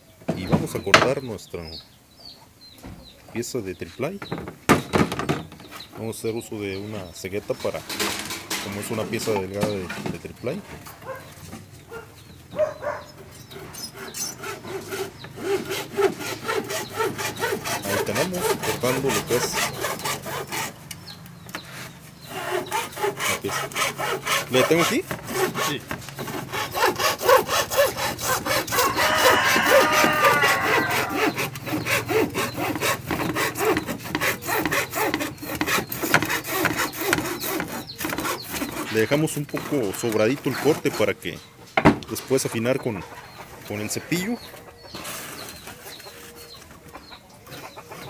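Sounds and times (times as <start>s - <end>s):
hacksaw cutting plywood: 13.5s - 21.1s, 21.7s - 41.2s.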